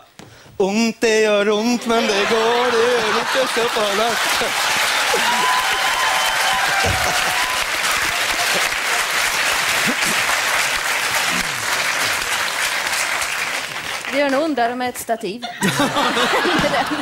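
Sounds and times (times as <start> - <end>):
audience applauding: 1.8 - 14.6.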